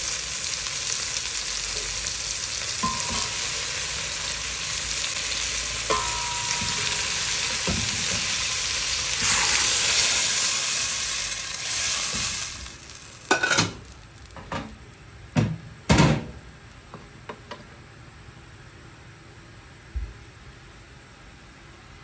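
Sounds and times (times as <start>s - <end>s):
green beans sizzling in pot: 0.0s - 15.9s.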